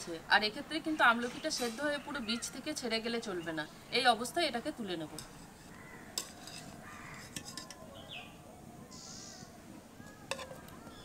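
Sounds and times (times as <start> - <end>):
metal spoon clinking on pot: 5.1 - 5.4, 6.1 - 7.8
faint chirp: 7.9 - 11.0.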